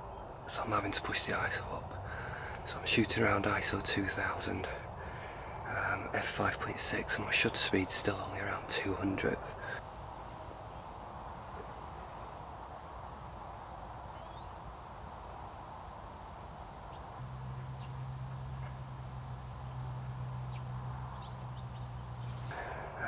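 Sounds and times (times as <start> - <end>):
low steady hum: 9.8 - 22.6
faint bird calls: 9.8 - 22.7.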